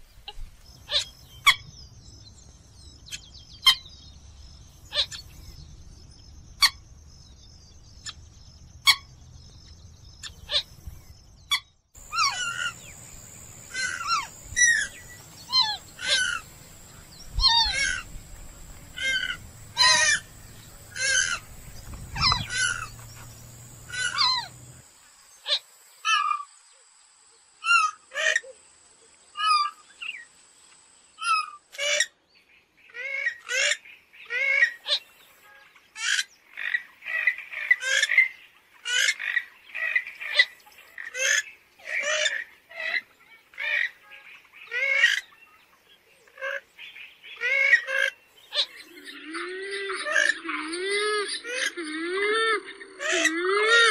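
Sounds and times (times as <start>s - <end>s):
bird calls: 0.0s - 5.7s, 6.4s - 26.5s, 32.9s - 53.9s
fast chattering bird calls: 12.0s - 24.8s.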